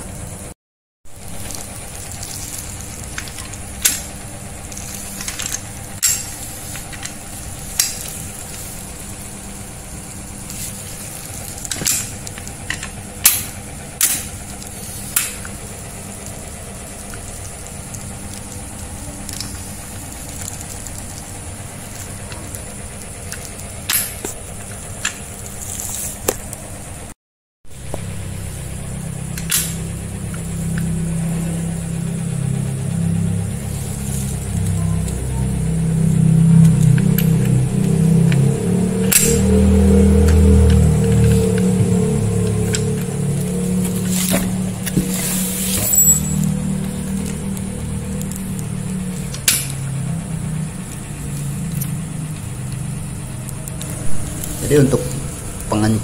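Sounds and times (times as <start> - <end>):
steady background hum: 0.0 - 56.0
metal parts clicking and clinking: 2.2 - 8.8, 45.7 - 46.5.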